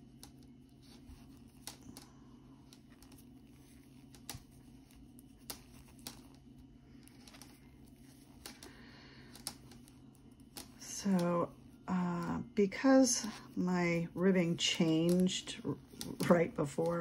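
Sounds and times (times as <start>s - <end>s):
low room hum: 0.0s - 17.0s
knitting needles clicking: 9.3s - 12.4s, 14.4s - 17.0s.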